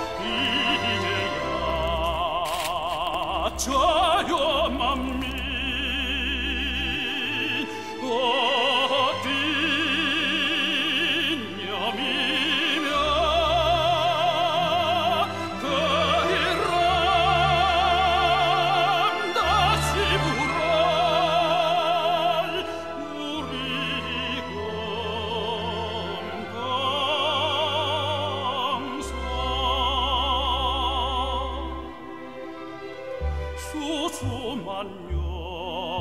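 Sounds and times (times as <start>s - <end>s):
operatic singing: 0.0s - 36.0s.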